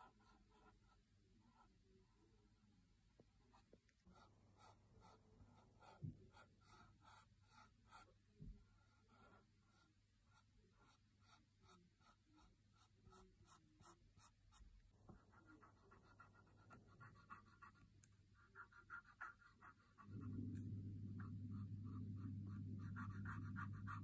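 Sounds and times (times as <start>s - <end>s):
marker scratching on phone case: 8.9s - 24.0s
low hum: 20.0s - 24.0s.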